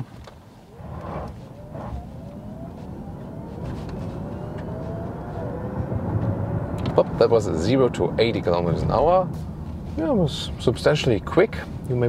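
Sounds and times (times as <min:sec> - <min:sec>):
road and tyre noise: 0:00.0 - 0:12.0
electric motor whine: 0:00.7 - 0:06.8.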